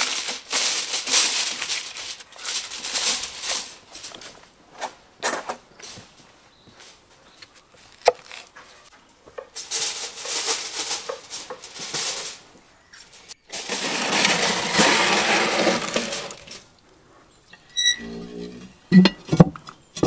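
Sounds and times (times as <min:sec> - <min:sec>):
metal tray scraping and clattering: 0:09.6 - 0:12.4, 0:13.1 - 0:16.6.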